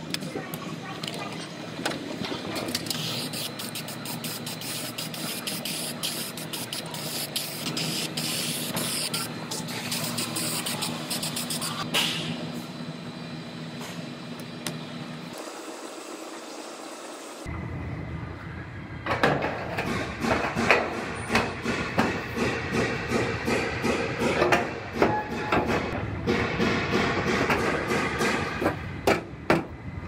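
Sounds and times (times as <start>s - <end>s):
aerosol spray can hissing: 2.9s - 11.8s.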